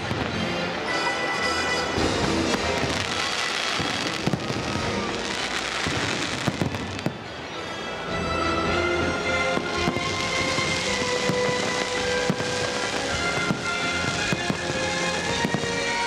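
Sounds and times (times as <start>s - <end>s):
fireworks bangs: 0.0s - 0.8s, 1.4s - 7.4s, 9.5s - 16.0s
music over loudspeakers: 8.4s - 16.0s.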